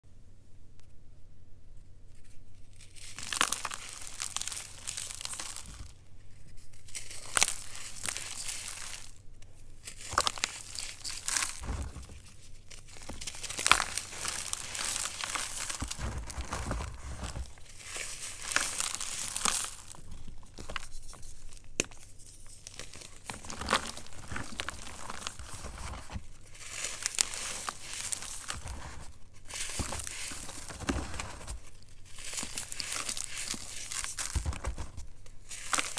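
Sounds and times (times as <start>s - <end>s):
chalk crumbling and crunching: 2.2s - 35.9s
chalk pieces snapping: 2.8s - 5.9s, 22.7s - 35.9s.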